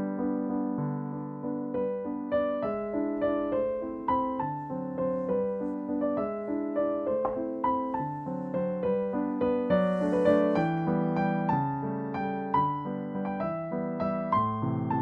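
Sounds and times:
piano music: 0.0 - 15.0.

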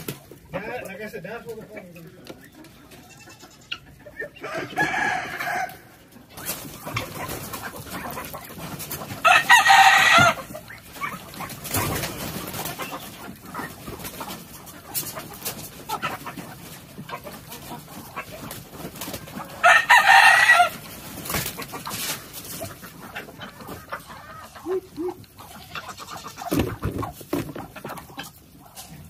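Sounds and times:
chicken clucking: 0.0 - 29.0
rooster crowing: 4.4 - 5.9, 9.2 - 10.4, 19.6 - 20.8.

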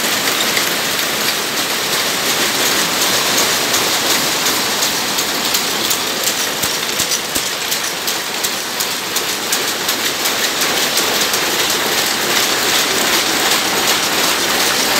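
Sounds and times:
looms clattering: 0.0 - 14.9.

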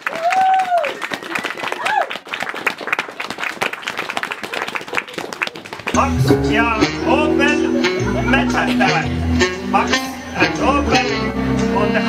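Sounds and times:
audience clapping: 0.0 - 6.1.

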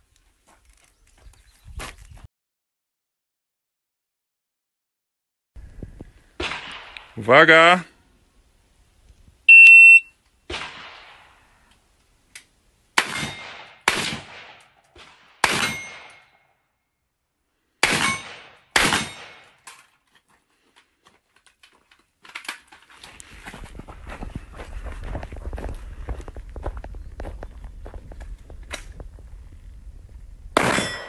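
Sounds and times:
rifle shots: 6.4 - 7.2, 10.5 - 11.3, 13.0 - 16.4, 17.8 - 19.6, 30.6 - 31.0
short ringing tone: 9.5 - 10.1
shot timer beep: 9.5 - 10.1.

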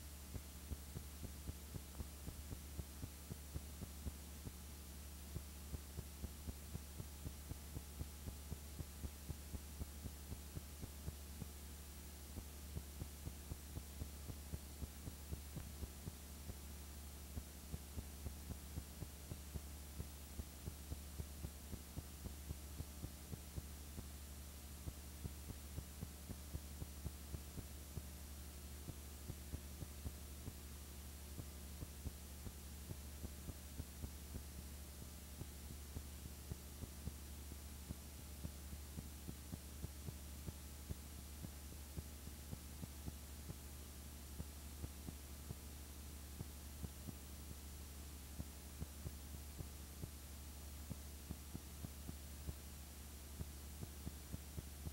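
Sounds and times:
faint hiss: 0.0 - 54.9
low electrical hum: 0.0 - 54.9.

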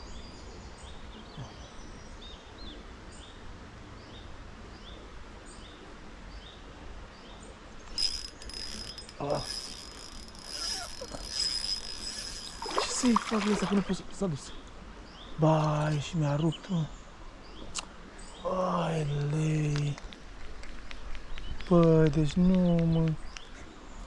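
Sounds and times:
fishing reel drag buzzing: 7.9 - 13.9
small chirps: 7.9 - 13.9.

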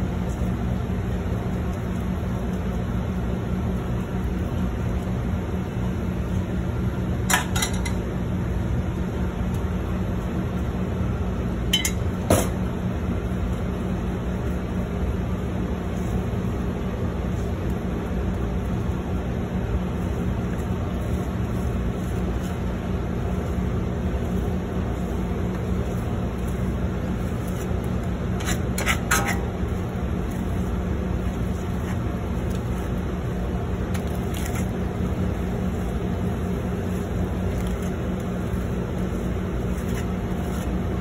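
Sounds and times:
kitchen machinery humming: 0.0 - 41.0
metal spatula scraping griddle: 27.2 - 30.6.

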